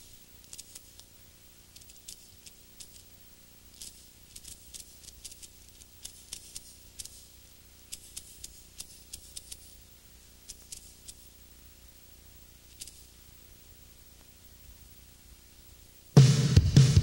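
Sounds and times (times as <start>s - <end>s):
small clicks and ticks: 0.0s - 11.4s, 12.6s - 13.2s
low steady hum: 0.0s - 17.0s.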